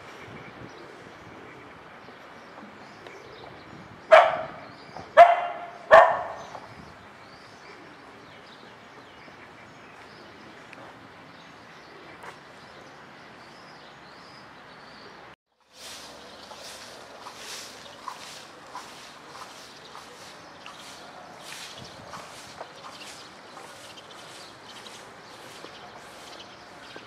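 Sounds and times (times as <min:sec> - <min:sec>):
dog barking: 0:04.1 - 0:04.6, 0:05.2 - 0:06.5.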